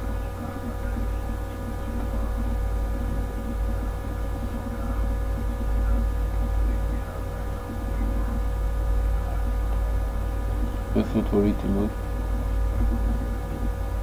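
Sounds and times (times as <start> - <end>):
faint rumbling murmur: 0.0 - 14.0
low electrical hum: 0.0 - 14.0.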